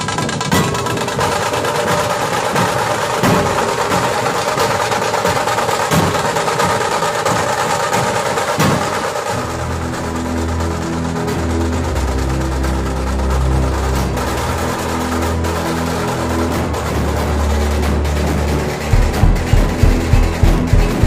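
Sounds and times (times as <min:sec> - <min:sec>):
street band music: 0:15.8 - 0:21.0
heavy drum stroke: 0:17.9 - 0:21.0.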